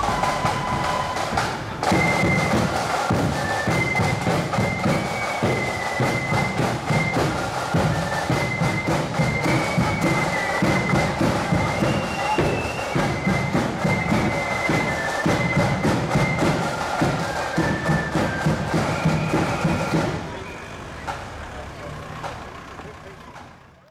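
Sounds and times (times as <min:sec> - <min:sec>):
high wind instrument melody: 0:00.0 - 0:20.7
side drums: 0:00.0 - 0:21.4.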